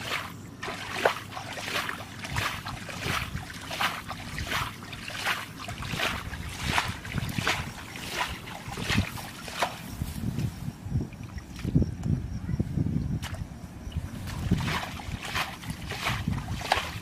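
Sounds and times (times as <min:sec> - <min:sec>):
hands splashing in shallow water: 0:00.0 - 0:10.0, 0:14.2 - 0:17.0.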